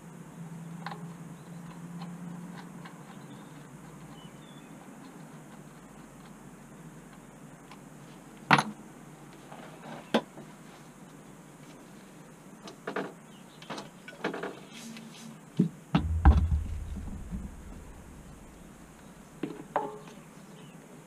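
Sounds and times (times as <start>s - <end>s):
floor pump thudding on bench: 16.0s - 18.7s.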